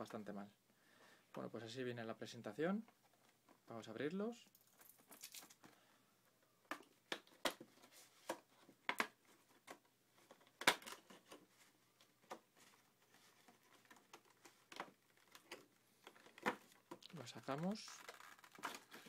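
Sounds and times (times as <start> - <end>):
stiff plastic clicking and crackling: 13.5 - 19.0.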